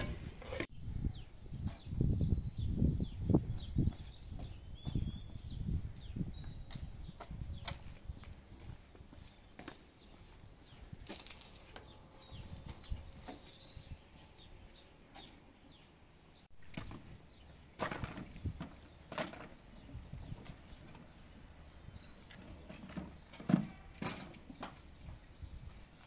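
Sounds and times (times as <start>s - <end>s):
footsteps on dirt: 3.8s - 15.3s.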